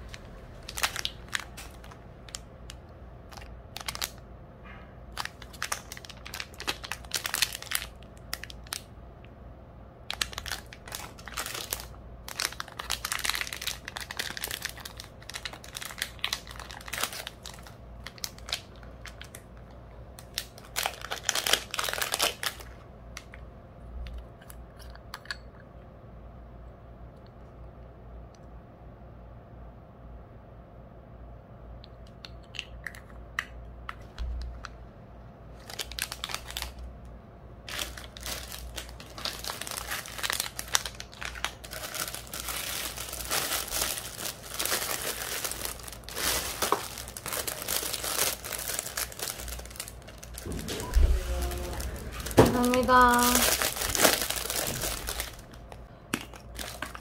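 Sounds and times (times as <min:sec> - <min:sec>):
plastic bags crinkling: 0:00.0 - 0:04.2, 0:05.1 - 0:08.9, 0:10.1 - 0:22.8, 0:35.5 - 0:36.8, 0:37.7 - 0:57.0.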